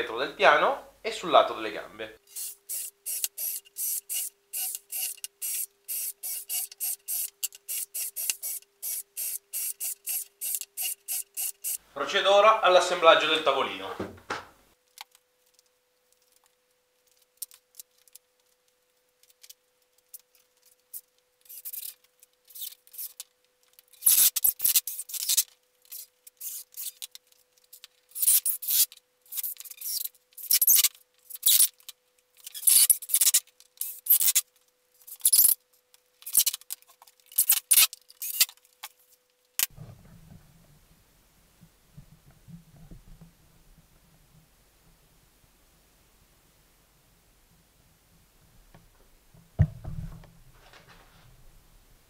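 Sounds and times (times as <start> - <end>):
wood knocking on workbench: 49.6 - 50.3.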